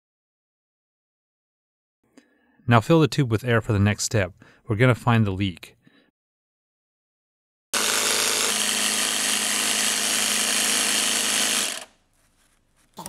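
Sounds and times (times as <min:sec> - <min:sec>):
electric air compressor running: 0:07.8 - 0:12.0.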